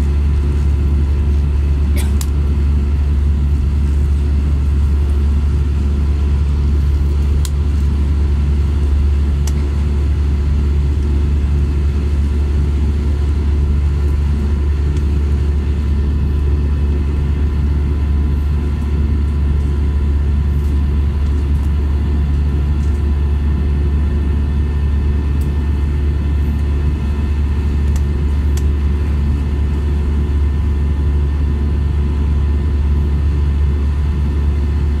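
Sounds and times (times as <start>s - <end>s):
airplane cabin engine rumble: 0.0s - 35.0s.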